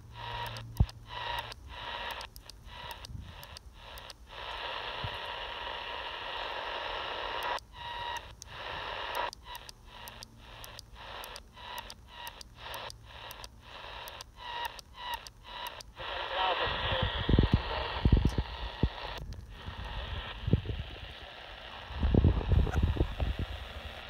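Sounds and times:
radio static hiss: 0.0 - 24.0.

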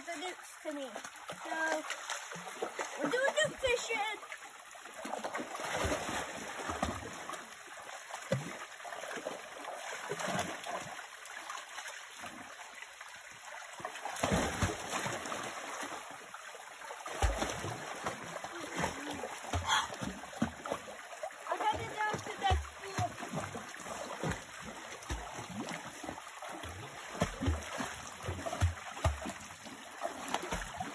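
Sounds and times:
flowing water rushing: 0.0 - 30.9
dog splashing in water: 13.9 - 16.0, 17.0 - 20.7, 21.5 - 29.4.

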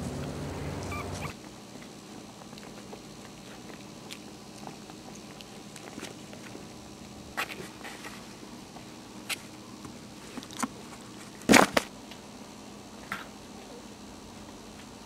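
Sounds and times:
puppies moving about: 0.0 - 6.7
faint steady hum: 0.0 - 15.0.

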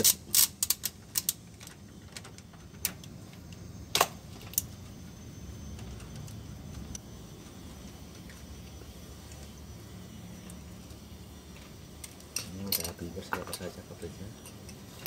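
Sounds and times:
steady low hum: 0.0 - 15.0
wrench clinking on metal: 12.3 - 13.7.

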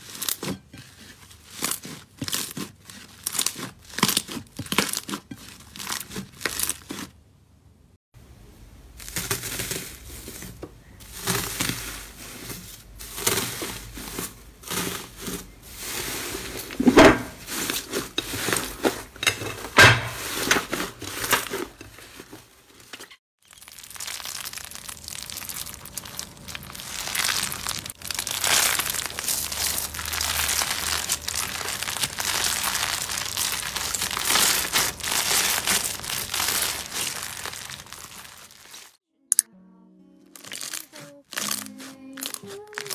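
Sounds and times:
crunchy slime crackling: 0.0 - 7.2, 8.9 - 19.2, 23.4 - 39.5, 40.4 - 42.9
foil crinkling and tearing: 0.0 - 7.2, 9.0 - 39.0, 40.4 - 42.9
hands kneading slime: 0.0 - 7.2, 23.9 - 38.9, 40.5 - 42.9.

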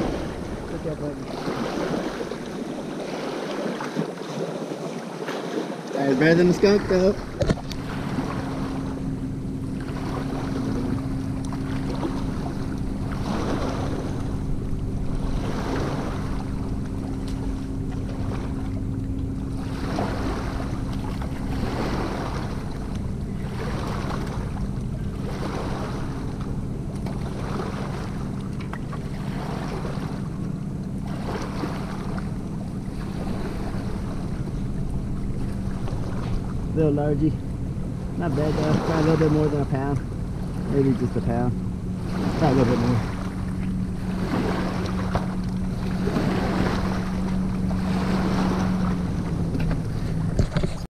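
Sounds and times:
steady low hum: 0.0 - 4.2, 6.0 - 50.9
waves lapping on rocky shore: 0.0 - 50.9.

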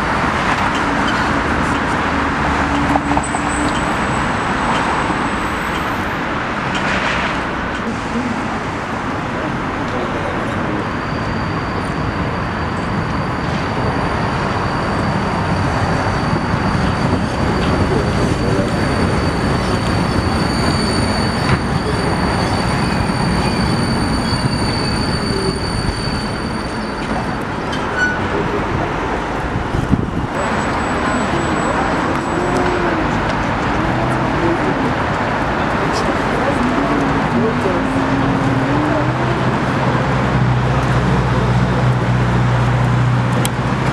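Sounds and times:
tram wheels rumbling on rails: 0.0 - 43.9
high-pitched wheel squeal: 10.2 - 28.6, 30.2 - 33.2.

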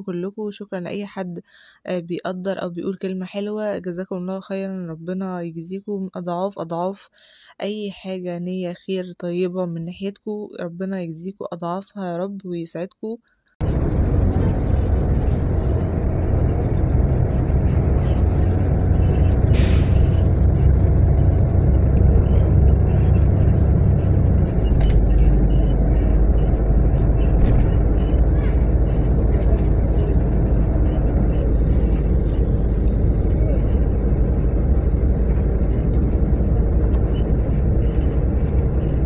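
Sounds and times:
bus engine and road noise: 13.6 - 39.0.

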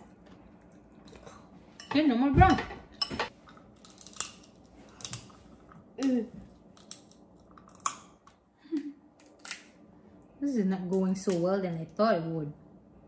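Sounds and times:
lobster shell crunching: 3.4 - 8.3.

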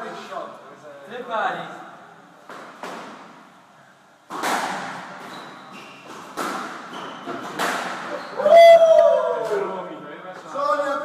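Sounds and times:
squash ball hitting walls: 4.3 - 8.3
shoes squeaking on wooden floor: 5.2 - 8.4.

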